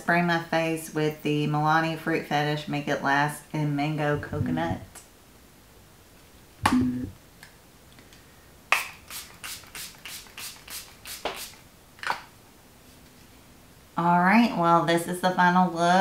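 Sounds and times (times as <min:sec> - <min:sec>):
spray bottle misting: 0:08.8 - 0:11.7.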